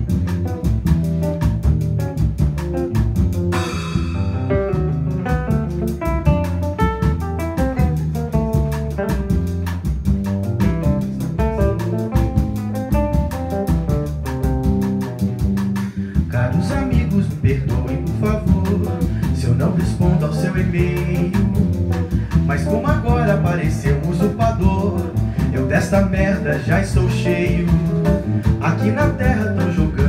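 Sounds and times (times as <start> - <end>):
acoustic guitar: 0.0 - 30.0
drum kit with cymbal strokes: 0.0 - 30.0
piano: 0.0 - 30.0
man singing: 16.1 - 30.0.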